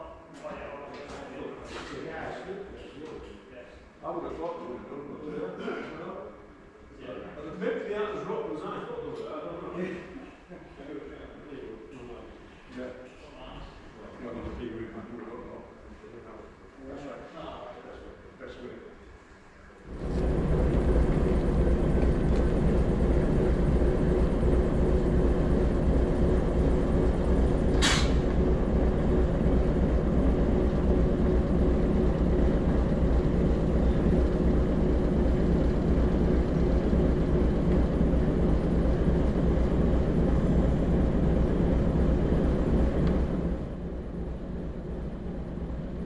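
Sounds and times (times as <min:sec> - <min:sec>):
diesel locomotive engine running: 0:19.6 - 0:46.0
air hiss: 0:27.7 - 0:28.3.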